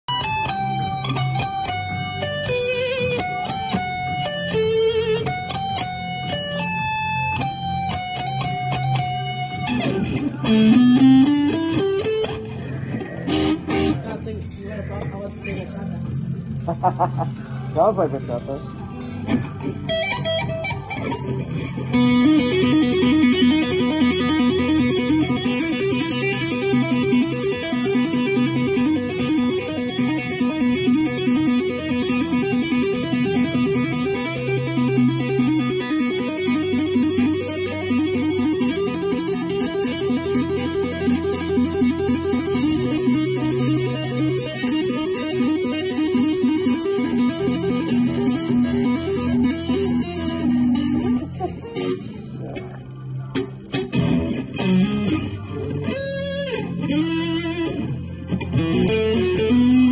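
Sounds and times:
electric guitar lead: 0.0s - 59.9s
low guitar note: 9.3s - 16.0s.

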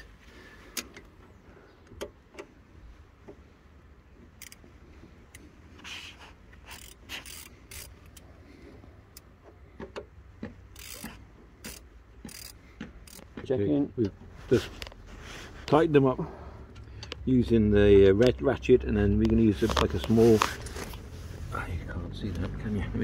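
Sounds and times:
socket ratchet clicking: 4.4s - 4.6s, 6.6s - 8.3s, 10.7s - 13.3s.

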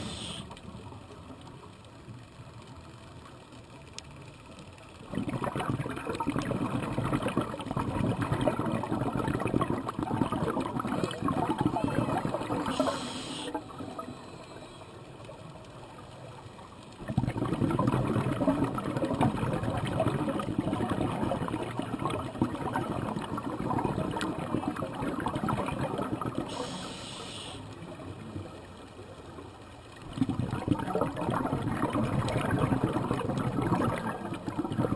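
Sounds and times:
regulator inhalation hiss: 0.0s - 0.6s, 12.7s - 13.6s, 26.5s - 27.7s
exhaust bubbles underwater: 5.0s - 14.7s, 17.0s - 28.0s, 29.9s - 34.9s.

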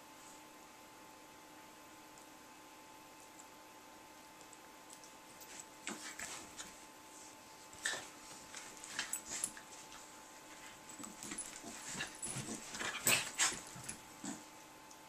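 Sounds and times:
dogs scuffling: 5.4s - 6.8s, 7.6s - 14.5s.

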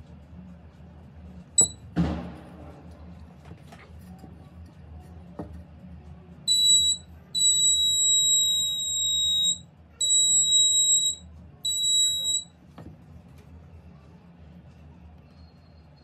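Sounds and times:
high-pitched electronic beeps: 1.6s - 1.8s, 6.5s - 12.5s.

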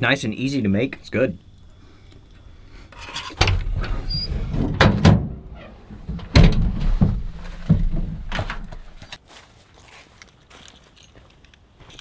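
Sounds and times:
sharp knocks and bumps: 3.3s - 9.1s.

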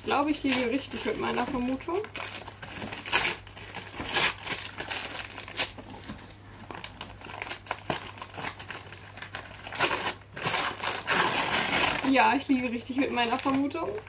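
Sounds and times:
wrapping paper crinkling: 0.0s - 14.0s.

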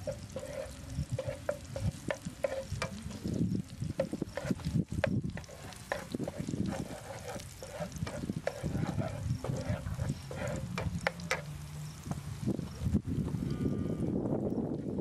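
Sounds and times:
spatula scraping a pan: 0.0s - 11.8s
garlic frying: 0.0s - 13.5s
cow mooing: 13.5s - 14.2s.

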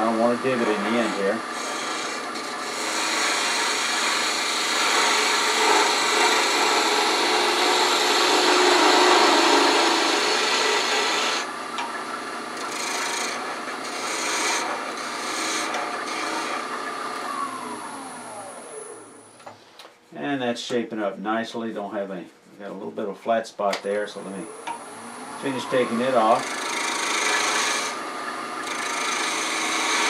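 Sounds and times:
gouge cutting wood on lathe: 0.0s - 18.6s, 25.4s - 30.0s
lathe spinning down: 24.7s - 30.0s.

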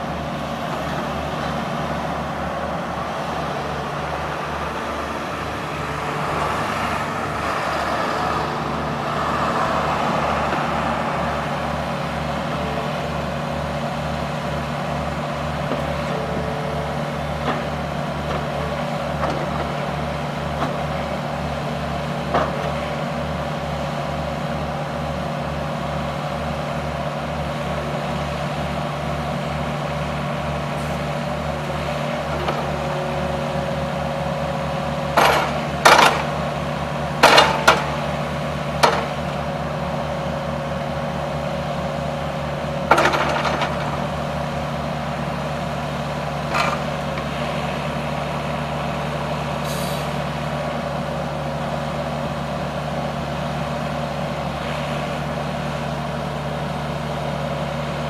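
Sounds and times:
excavator diesel engine running: 0.0s - 58.0s
excavator arm knocking: 35.1s - 36.4s, 37.2s - 38.0s, 38.8s - 39.3s.

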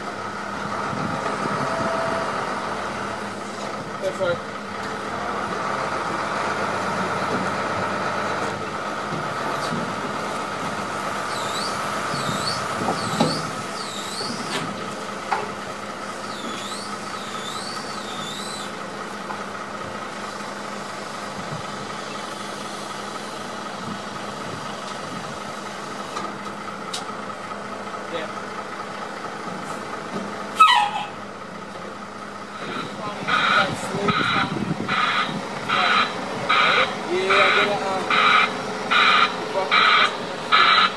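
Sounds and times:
truck engine running: 0.0s - 40.9s
bird whistling calls: 11.3s - 14.5s, 16.3s - 18.7s
crane high whine: 32.5s - 40.9s.

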